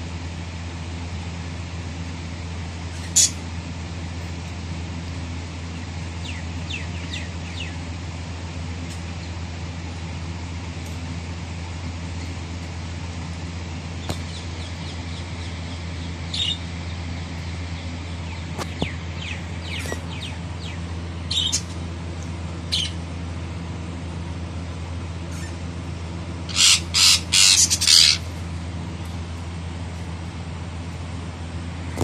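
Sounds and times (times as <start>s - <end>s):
steady low hum: 0.0s - 32.0s
parakeets calling: 2.8s - 3.6s, 5.7s - 8.0s, 11.5s - 23.4s, 24.6s - 28.9s
harsh squawks: 26.5s - 28.3s.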